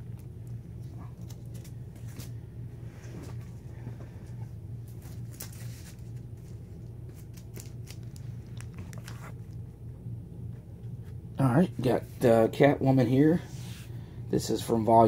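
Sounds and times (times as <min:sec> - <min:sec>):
low hum: 0:00.0 - 0:15.0
comic books rustling: 0:00.8 - 0:02.4, 0:03.0 - 0:09.6.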